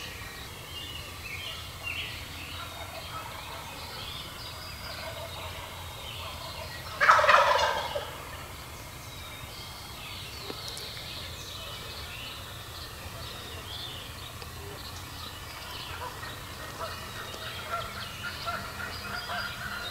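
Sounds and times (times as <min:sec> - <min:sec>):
turkey gobbling: 0:02.5 - 0:08.6, 0:14.6 - 0:19.9.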